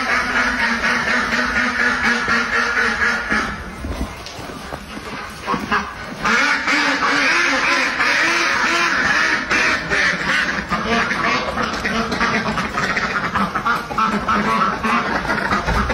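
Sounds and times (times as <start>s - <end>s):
ducks quacking: 0.0s - 15.9s.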